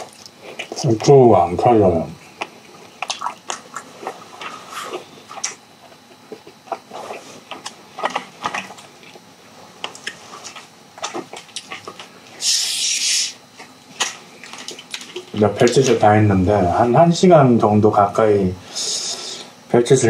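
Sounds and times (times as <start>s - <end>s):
mouth chewing food: 0.0s - 16.0s.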